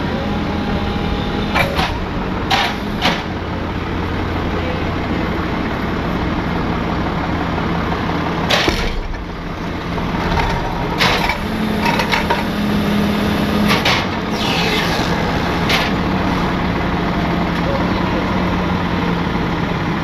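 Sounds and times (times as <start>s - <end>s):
tow truck engine running: 0.0s - 20.0s
sharp knocks: 8.5s - 9.3s.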